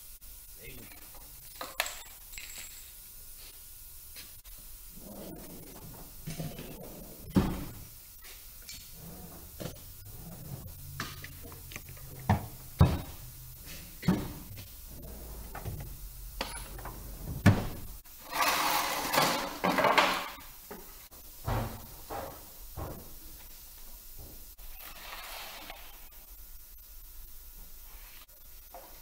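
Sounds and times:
metal drawers sliding: 8.7s - 20.4s, 21.4s - 23.2s.

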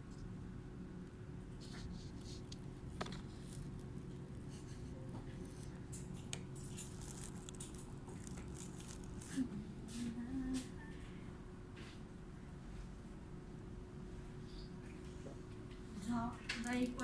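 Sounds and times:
steady low hum: 0.0s - 17.0s
faint clicks and rustles: 1.6s - 11.1s, 14.8s - 17.0s.

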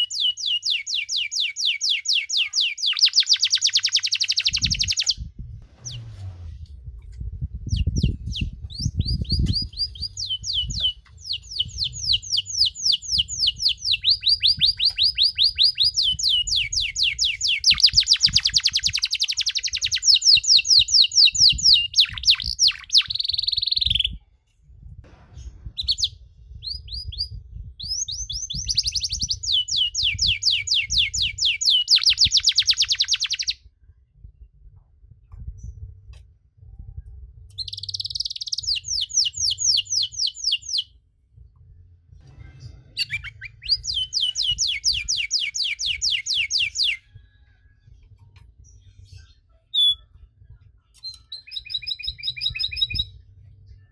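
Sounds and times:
canary singing: 0.0s - 5.2s, 7.7s - 24.2s, 25.8s - 33.6s, 37.5s - 40.9s, 43.0s - 47.1s, 49.1s - 50.3s, 50.9s - 53.2s
faint low rumble: 4.6s - 17.1s, 21.3s - 31.4s, 33.5s - 45.3s, 46.9s - 53.9s.

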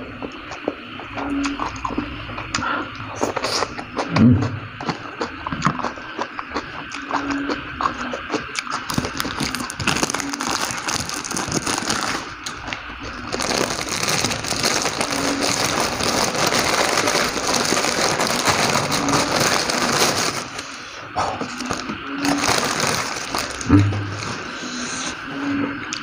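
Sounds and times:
chewing noodles: 0.0s - 25.2s
plastic bag crinkling: 8.9s - 24.9s.

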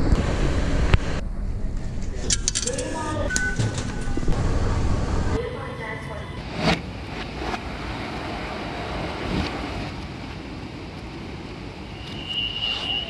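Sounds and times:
subway train rumbling: 0.0s - 13.0s
platform doors opening: 2.2s - 4.9s.

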